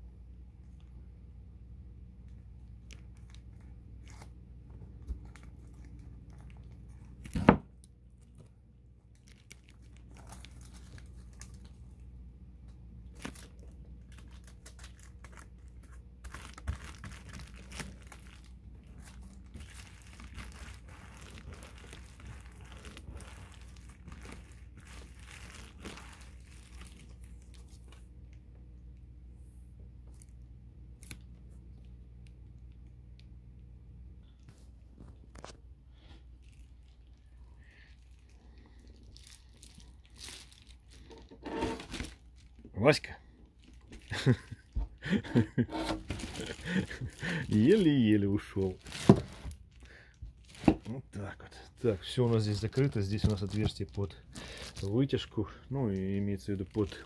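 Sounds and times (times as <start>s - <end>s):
faint low hum: 0.0s - 57.0s
foil insulation crinkling and tearing: 2.8s - 4.4s, 8.1s - 12.0s, 13.0s - 28.1s, 35.3s - 57.0s.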